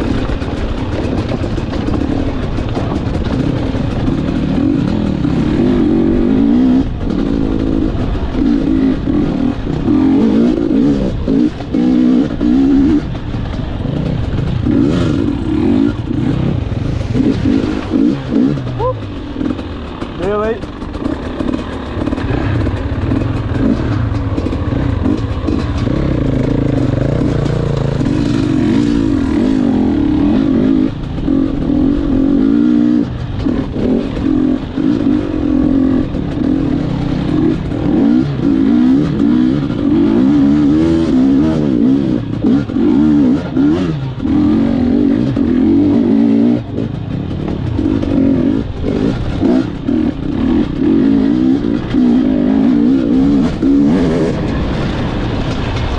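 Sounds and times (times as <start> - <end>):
two-stroke bike engine revving: 0.0 - 55.9.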